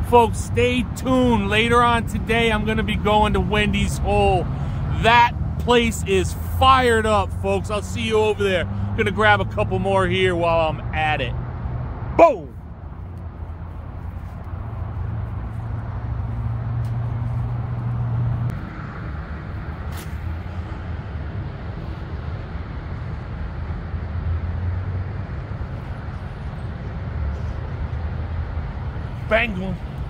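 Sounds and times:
road traffic rumble: 0:00.0 - 0:30.0.

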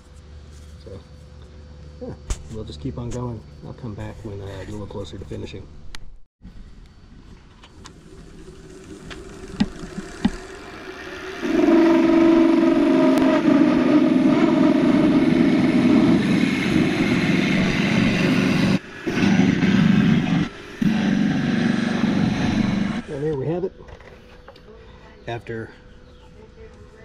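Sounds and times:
lathe gouge cutting with hum: 0:08.0 - 0:23.2.

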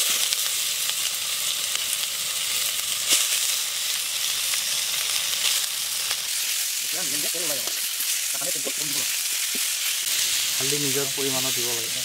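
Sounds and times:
meat sizzling in hot oil: 0:00.0 - 0:12.0.

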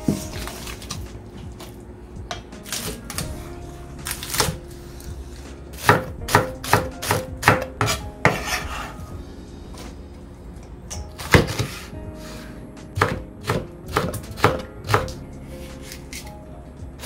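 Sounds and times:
knife chopping on cutting board: 0:05.8 - 0:08.9, 0:13.0 - 0:15.2.

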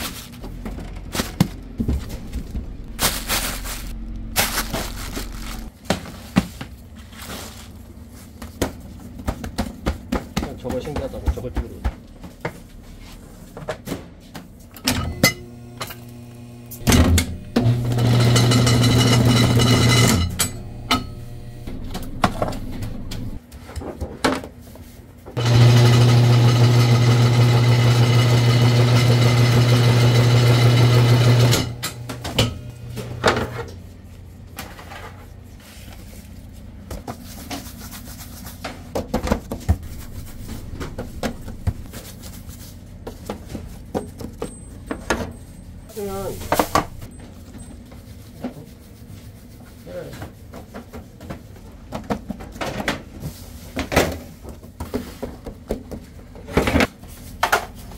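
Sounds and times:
machine motor hum: 0:01.7 - 0:05.7, 0:15.4 - 0:23.4, 0:39.7 - 0:41.9.

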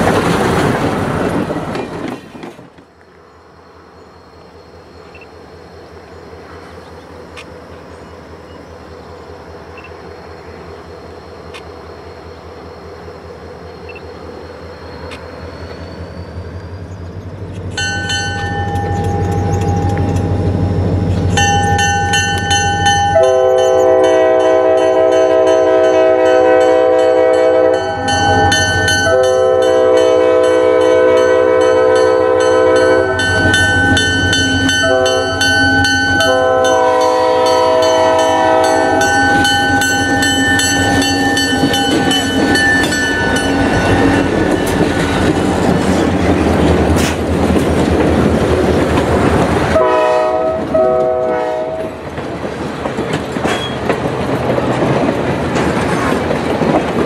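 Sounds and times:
locomotive engine rumble: 0:00.0 - 0:57.0
multi-note air horn blasts: 0:23.2 - 0:28.0, 0:29.1 - 0:33.2, 0:34.8 - 0:35.4, 0:36.2 - 0:39.1, 0:49.8 - 0:52.0.

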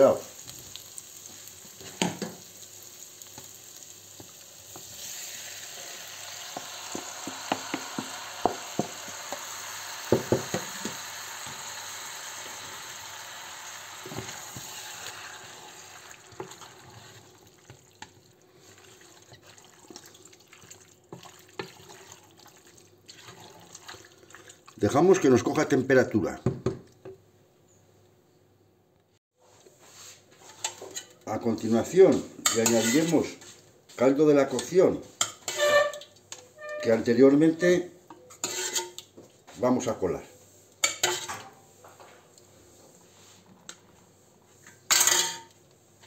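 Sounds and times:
food sizzling in hot oil: 0:00.0 - 0:20.0, 0:32.4 - 0:33.2, 0:38.4 - 0:39.0
wooden spoon stirring pot: 0:16.2 - 0:25.0.

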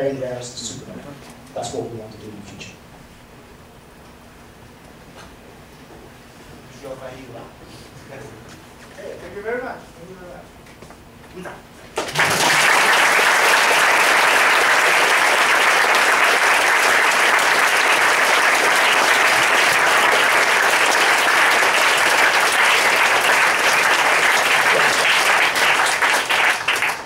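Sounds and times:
audience applauding: 0:12.0 - 0:27.0.

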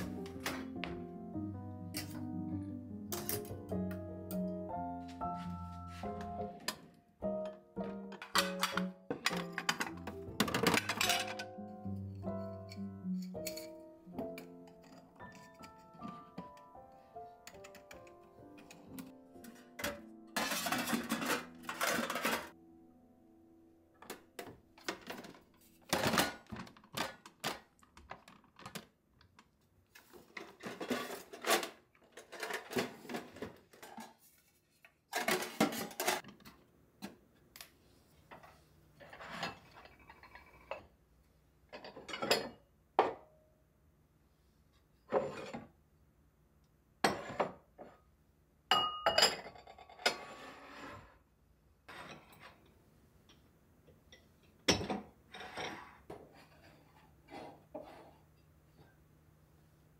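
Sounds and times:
steel containers clinking: 0:19.5 - 0:22.5
ceramic bowl clinking: 0:48.7 - 0:49.6.

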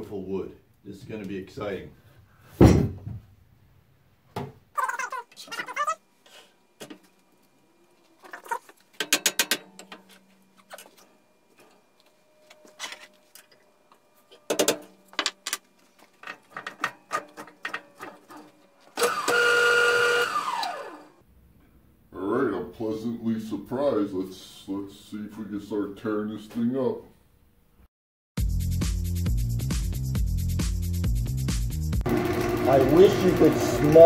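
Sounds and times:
lathe motor whine: 0:19.0 - 0:21.2, 0:32.1 - 0:34.0.

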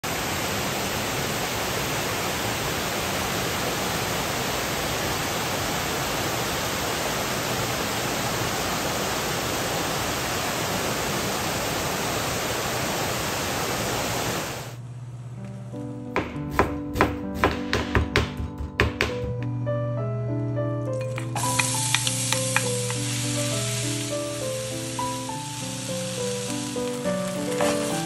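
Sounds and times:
water rushing over rocks: 0:00.0 - 0:14.8, 0:21.2 - 0:28.0.

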